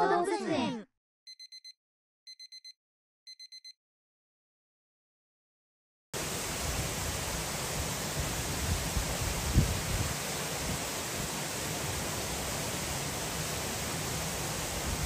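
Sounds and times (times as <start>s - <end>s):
electronic alarm beeps: 1.3s - 3.8s
steady rain: 6.2s - 15.0s.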